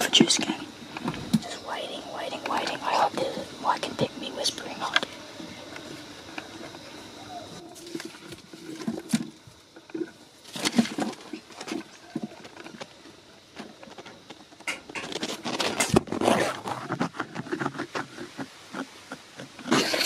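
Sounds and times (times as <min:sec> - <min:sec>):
leaves rustling and crackling: 0:04.6 - 0:18.8.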